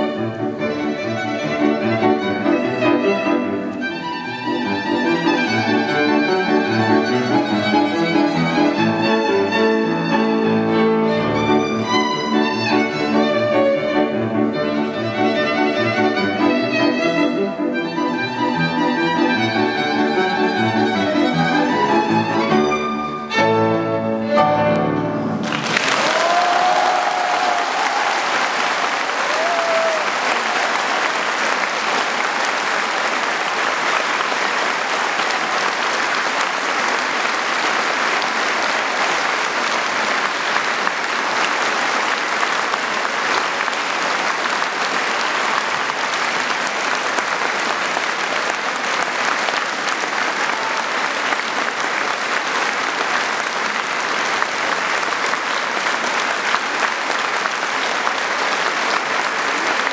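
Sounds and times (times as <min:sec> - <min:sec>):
audience applauding: 0:00.0 - 0:23.4, 0:24.8 - 0:59.9.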